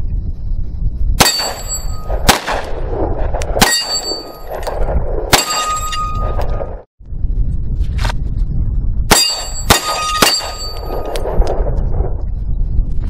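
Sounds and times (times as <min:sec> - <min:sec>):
wind rumble on microphone: 0:00.0 - 0:13.0
steel plate targets ringing: 0:01.2 - 0:02.2, 0:03.6 - 0:04.7, 0:05.3 - 0:06.6, 0:09.1 - 0:11.1
pistol shots: 0:01.2 - 0:02.8, 0:03.6 - 0:06.4, 0:09.1 - 0:11.3.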